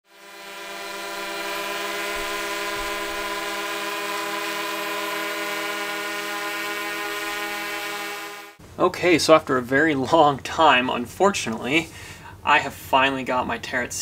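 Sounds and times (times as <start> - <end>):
drone motors humming: 0.1 - 8.6.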